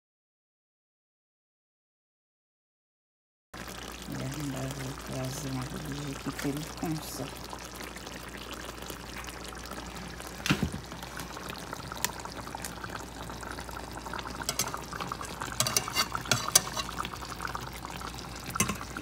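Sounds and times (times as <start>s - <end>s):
fish bubbling in sauce: 3.6s - 19.0s
spatula and fork scraping pan: 14.4s - 17.2s, 18.6s - 19.0s.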